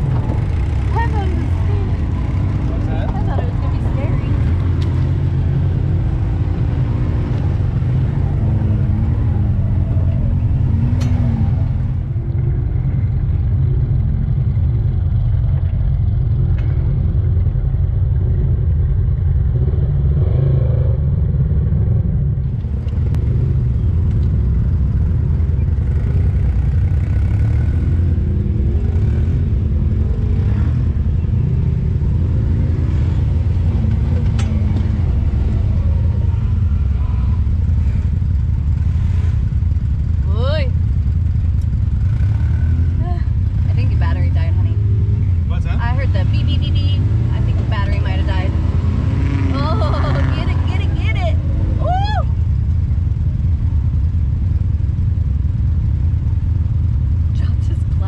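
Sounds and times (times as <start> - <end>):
vehicle engine revving: 0.0 - 58.0.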